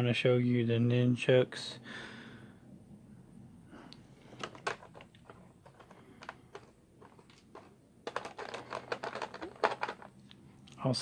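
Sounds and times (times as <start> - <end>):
fingers clicking on plastic tray: 4.4 - 10.1.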